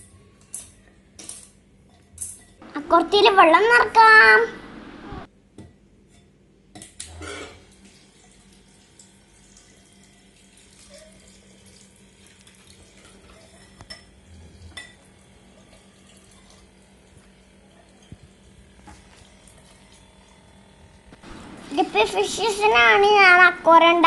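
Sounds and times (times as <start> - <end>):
small pump humming: 7.1 - 24.0
water trickling into glass bowl: 7.9 - 14.1, 14.7 - 17.2.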